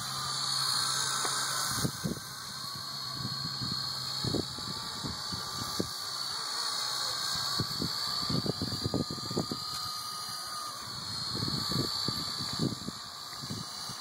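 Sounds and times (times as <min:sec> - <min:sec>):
rc helicopter motor whine: 0:00.0 - 0:14.0
wind buffeting microphone: 0:01.7 - 0:06.0, 0:07.5 - 0:09.7, 0:10.9 - 0:13.7.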